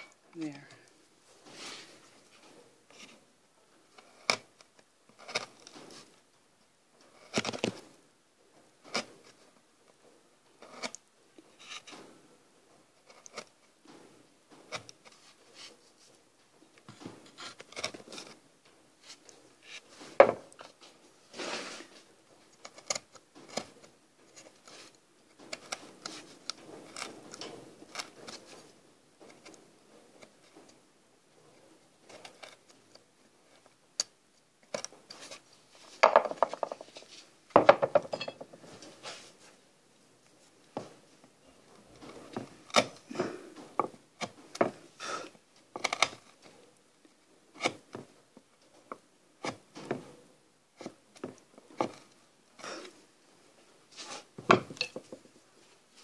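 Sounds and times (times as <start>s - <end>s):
chisel scraping wood: 4.0s - 6.1s, 7.1s - 7.8s, 10.6s - 11.0s, 13.0s - 13.6s, 16.9s - 18.4s, 22.6s - 28.7s.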